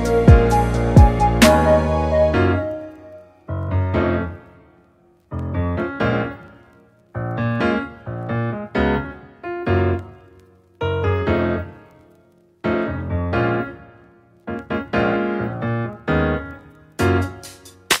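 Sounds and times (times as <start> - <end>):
piano chords: 0.0 - 18.0.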